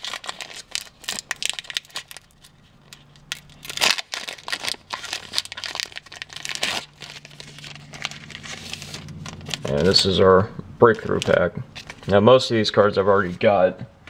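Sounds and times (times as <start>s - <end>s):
foil wrapper tearing and crinkling: 0.0s - 10.0s.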